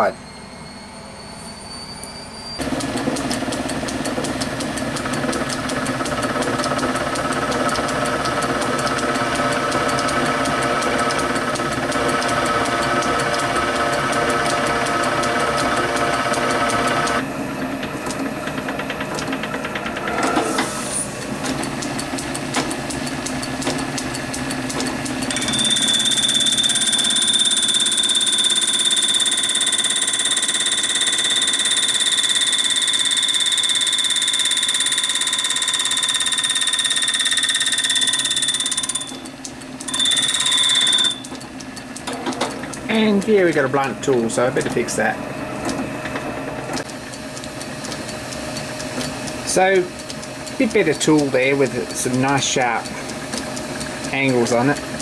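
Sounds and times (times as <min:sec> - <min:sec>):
high-pitched tool squeal: 0:00.0 - 0:02.6, 0:25.3 - 0:39.3, 0:39.9 - 0:41.3
lathe drive whine: 0:00.0 - 0:55.0.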